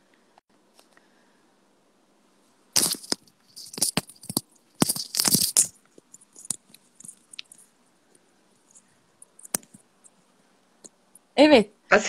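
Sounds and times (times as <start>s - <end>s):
earphone cable clicks and rustles: 2.8s - 7.7s, 8.7s - 10.2s.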